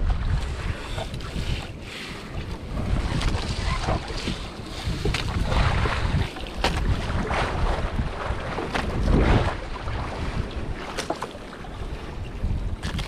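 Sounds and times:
sea water washing: 0:00.0 - 0:13.0
wind buffeting microphone: 0:00.0 - 0:13.0.

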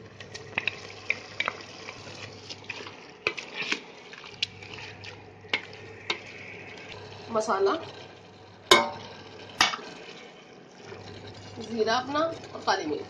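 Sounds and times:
food sizzling in oil: 0:00.0 - 0:13.0
wooden spatula scraping pot: 0:00.5 - 0:07.9.

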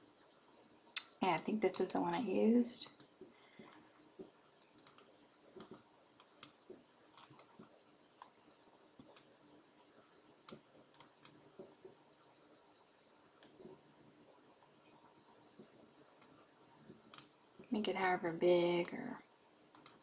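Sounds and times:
computer mouse clicks: 0:02.8 - 0:08.3, 0:10.4 - 0:12.0, 0:15.6 - 0:18.1, 0:19.7 - 0:20.0.

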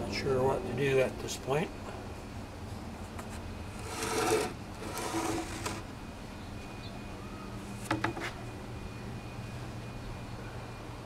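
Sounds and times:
steady low hum: 0:00.0 - 0:11.0
plywood scraping against plywood: 0:03.2 - 0:05.8.

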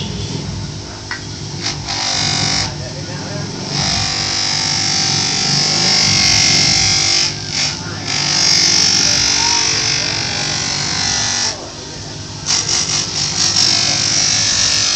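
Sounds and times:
buffing wheel motor hum: 0:00.0 - 0:14.9
wood rubbing on buffing wheel: 0:03.6 - 0:11.8.

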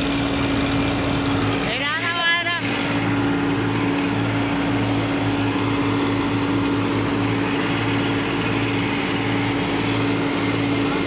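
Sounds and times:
tractor engine droning: 0:00.0 - 0:11.0.

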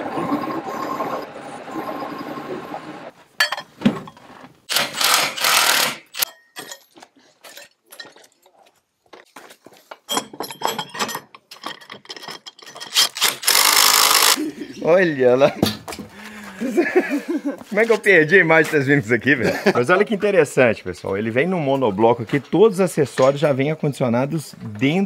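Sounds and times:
metallic knocks and clinks: 0:03.4 - 0:04.2, 0:06.2 - 0:08.6, 0:10.0 - 0:13.1
steady machine noise: 0:13.2 - 0:14.4.

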